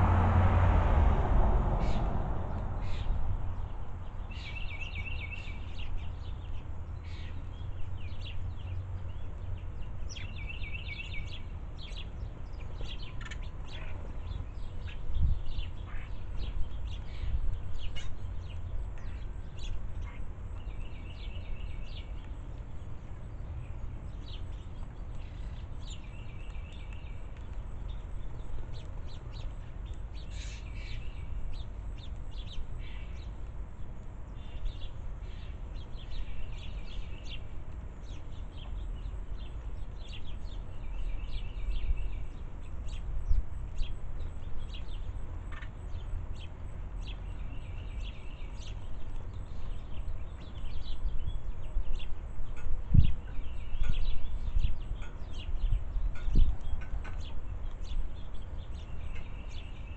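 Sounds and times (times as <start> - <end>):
steady low rumble: 0.0 - 6.2
sparrows chirping: 1.8 - 59.9.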